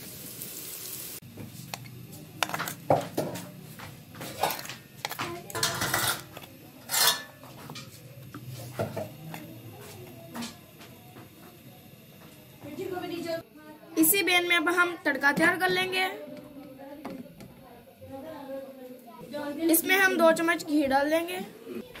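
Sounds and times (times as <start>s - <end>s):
frying sizzle: 0.0s - 13.4s
fork scraping frying pan: 4.2s - 9.1s.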